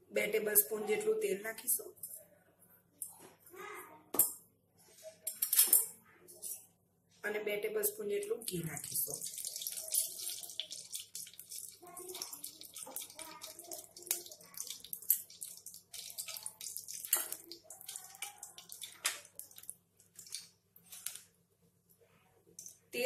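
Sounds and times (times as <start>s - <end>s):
oil sizzling and crackling: 8.7s - 21.2s.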